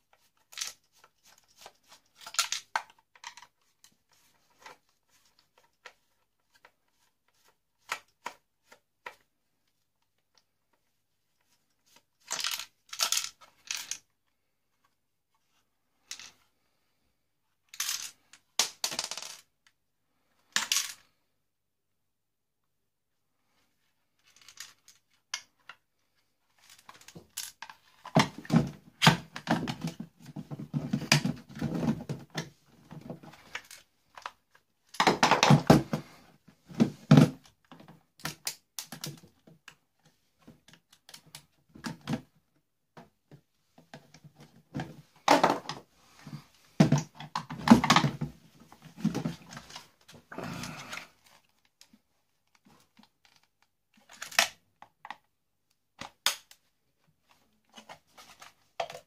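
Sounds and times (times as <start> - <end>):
plastic clicks and clatter: 0.1 - 9.3, 11.9 - 14.1, 26.6 - 42.3, 50.9 - 56.7, 57.3 - 59.0.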